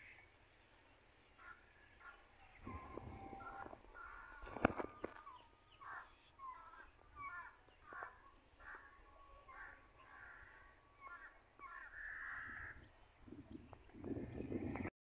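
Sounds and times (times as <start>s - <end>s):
rustle: 0.0s - 5.8s
faint bird calls: 1.3s - 14.9s
high bird chirping: 2.6s - 8.8s.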